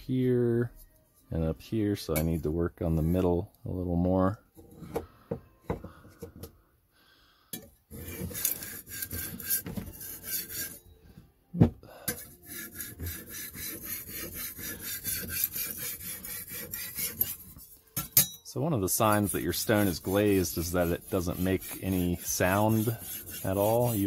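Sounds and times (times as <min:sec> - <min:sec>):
knife scraping on sharpening stone: 0:07.9 - 0:10.8, 0:12.1 - 0:18.4, 0:19.2 - 0:24.0.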